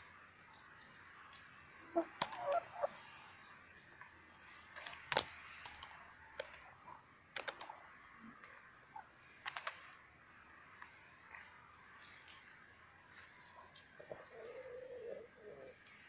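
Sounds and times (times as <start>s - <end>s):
beaks tapping on concrete: 9.4s - 9.9s.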